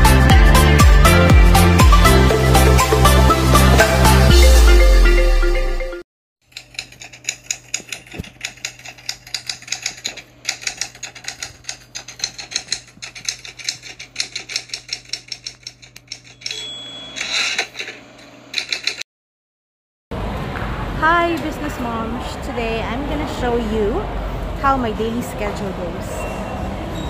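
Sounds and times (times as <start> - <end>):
typewriter key clicks: 6.6 - 16.6, 18.6 - 19.0
short ringing tone: 16.3 - 17.6.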